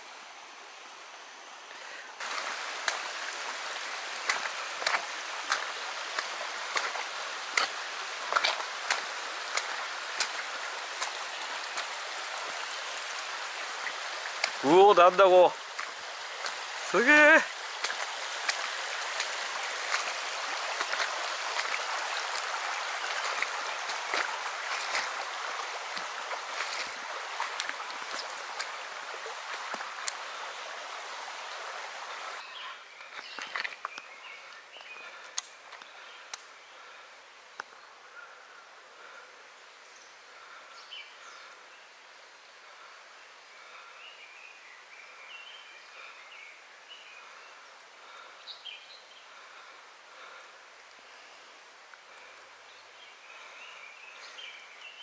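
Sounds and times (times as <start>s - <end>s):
stream rippling over rocks: 0.0s - 55.0s
short water splashes: 2.2s - 32.4s, 33.1s - 34.0s.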